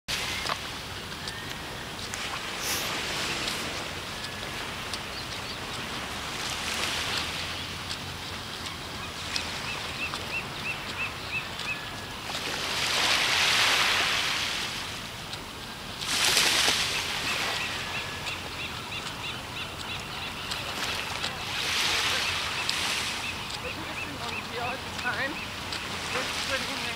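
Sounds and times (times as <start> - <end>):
small waves washing onto sand: 0.1 - 26.9.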